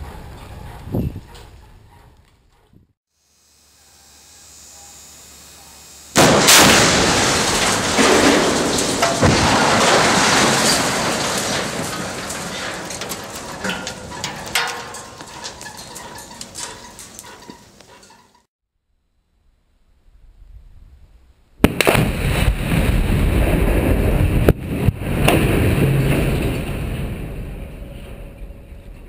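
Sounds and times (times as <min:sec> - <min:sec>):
loud explosive blast: 0:06.2 - 0:11.5, 0:21.6 - 0:27.6
flying debris clattering: 0:06.2 - 0:17.7, 0:21.6 - 0:29.0.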